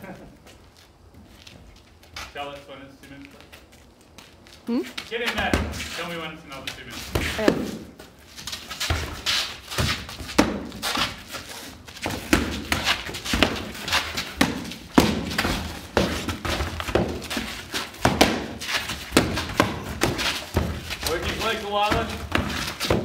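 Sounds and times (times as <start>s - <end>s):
training swords thudding on shields: 12.0s - 23.0s.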